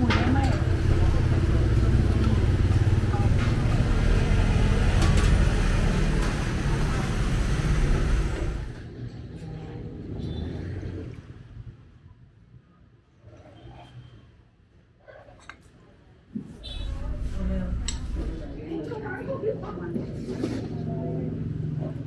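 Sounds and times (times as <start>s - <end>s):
motorbikes passing: 0.0s - 9.0s
street traffic rumble: 0.0s - 12.1s, 16.4s - 22.0s.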